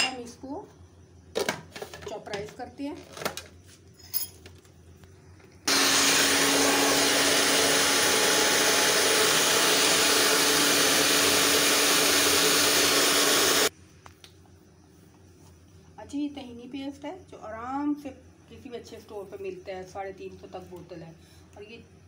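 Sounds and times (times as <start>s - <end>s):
electric food processor running: 5.7s - 13.7s.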